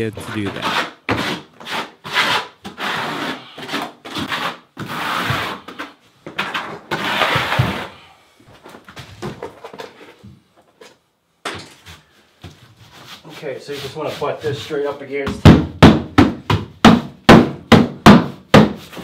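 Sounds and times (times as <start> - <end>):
tools scraping plywood: 0.2 - 8.0.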